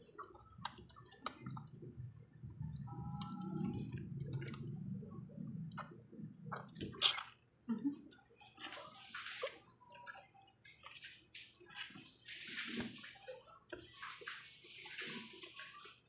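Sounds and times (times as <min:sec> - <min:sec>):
puppy slurping and smacking: 0:00.0 - 0:07.4, 0:08.1 - 0:16.0.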